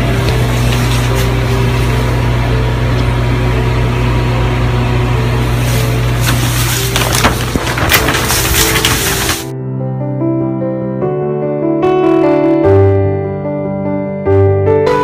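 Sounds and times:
machinery droning: 0.0s - 9.5s.

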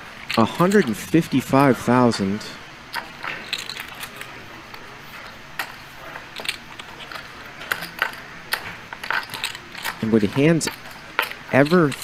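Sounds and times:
low steady hum: 0.0s - 12.0s
poker chips clicking: 3.0s - 4.9s, 5.6s - 12.0s.

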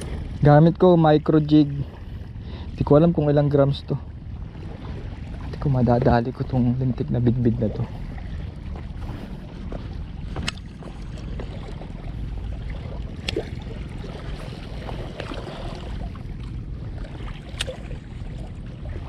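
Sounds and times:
water lapping against rocks: 0.0s - 19.0s.

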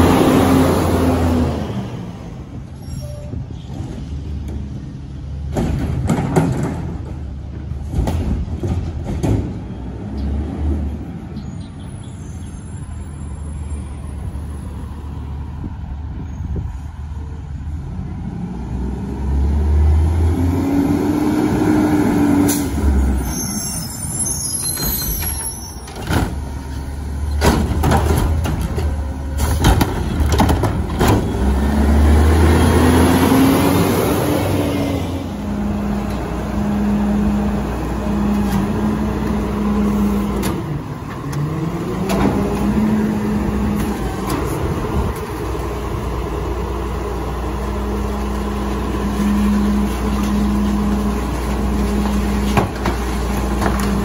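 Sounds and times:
garbage truck engine: 0.0s - 15.9s, 16.9s - 54.0s
knocks and thuds: 5.5s - 9.6s, 27.4s - 31.3s.

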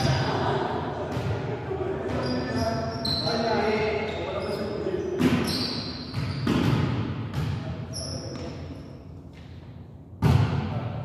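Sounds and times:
volleyball thuds in a gym: 0.0s - 2.5s, 5.1s - 11.0s.

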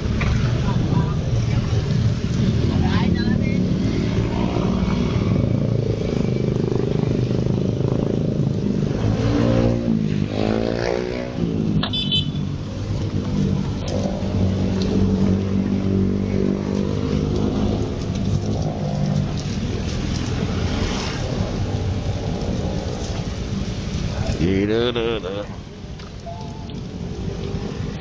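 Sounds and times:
motorcycle engines idling: 0.0s - 9.2s, 11.4s - 28.0s
heavy rain hiss: 19.0s - 26.0s
high beep: 26.2s - 26.8s.

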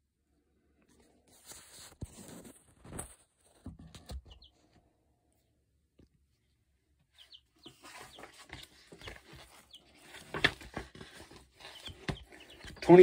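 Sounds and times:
chicks peeping: 4.0s - 4.8s, 6.5s - 13.0s.

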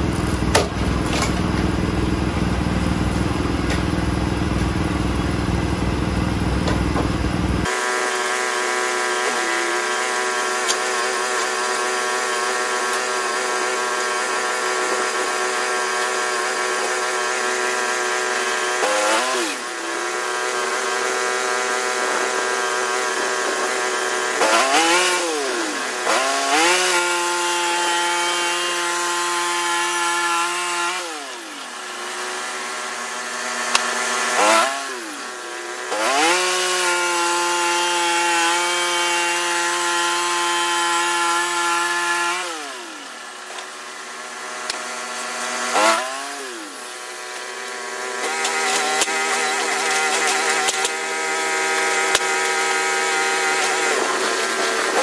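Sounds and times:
band blade cutting log: 0.0s - 4.9s, 6.6s - 55.0s
sawmill engine running: 0.0s - 55.0s.

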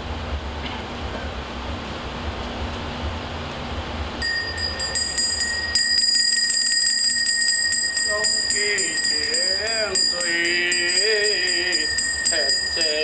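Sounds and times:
hand bell ringing: 4.2s - 13.0s.

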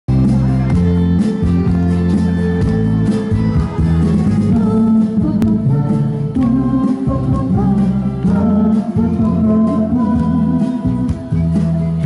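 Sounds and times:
acoustic guitar: 0.1s - 12.0s
person singing: 3.7s - 12.0s.

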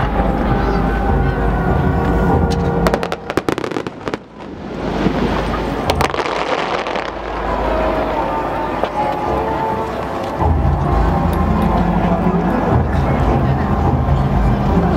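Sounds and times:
firework bangs and crackles: 2.0s - 9.3s.

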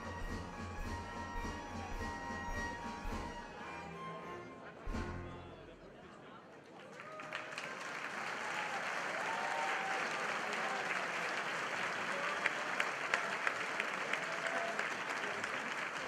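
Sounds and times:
audience applauding: 6.6s - 16.0s.

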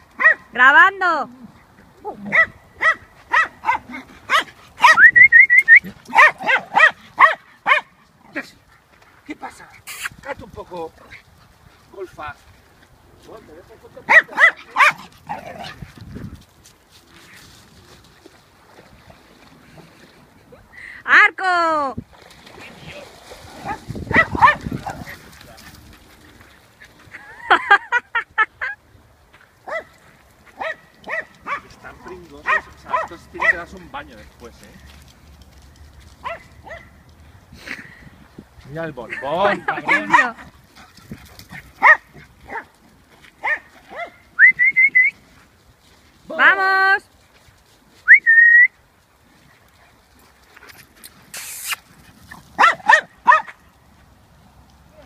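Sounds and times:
dogs barking: 0.2s - 0.5s, 2.2s - 5.0s, 6.1s - 7.9s, 14.0s - 15.8s, 23.6s - 25.2s, 29.7s - 30.0s, 30.6s - 31.8s, 32.4s - 33.7s, 36.2s - 37.0s, 39.7s - 40.4s, 41.8s - 42.7s, 43.4s - 44.2s, 52.6s - 53.6s
dog splashing in water: 22.0s - 26.1s
small dog yapping: 23.6s - 25.1s.

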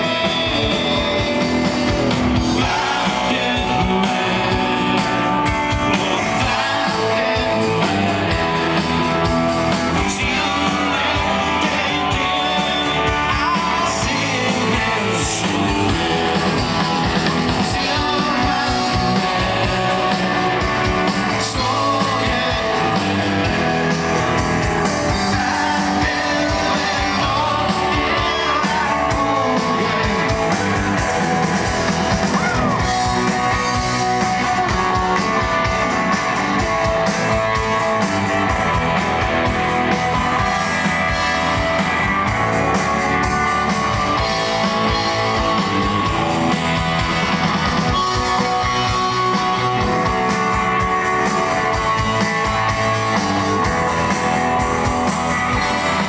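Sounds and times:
man singing: 0.0s - 8.8s, 9.7s - 24.0s, 24.9s - 31.5s
bass guitar: 0.0s - 56.0s
drums: 0.0s - 56.0s
electric guitars: 0.0s - 56.0s.

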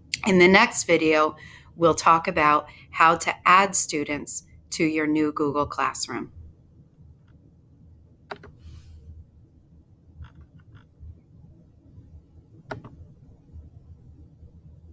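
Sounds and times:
low steady hum: 0.0s - 14.9s
computer mouse clicks: 8.3s - 8.6s, 10.2s - 10.9s, 12.7s - 13.0s.

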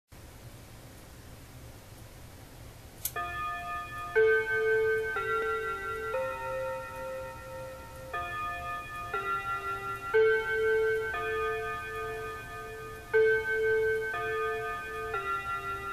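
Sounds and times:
clock click: 3.0s - 3.3s
clock chime melody: 3.2s - 15.9s.

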